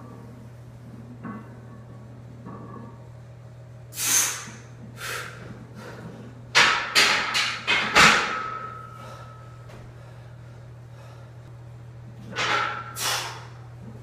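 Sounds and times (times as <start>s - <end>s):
hissing breaths: 4.0s - 6.0s, 13.0s - 13.6s
barbell clanking into metal rack: 6.6s - 9.0s.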